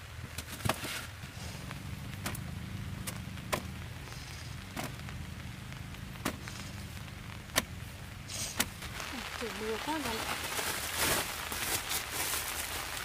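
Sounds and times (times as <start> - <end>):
steady low rumble: 1.1 - 13.0.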